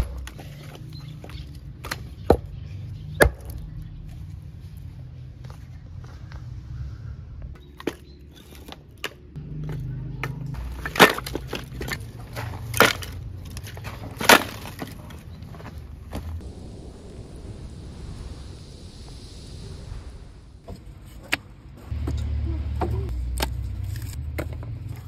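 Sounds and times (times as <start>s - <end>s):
firewood sticks knocking together: 7.8s - 16.2s.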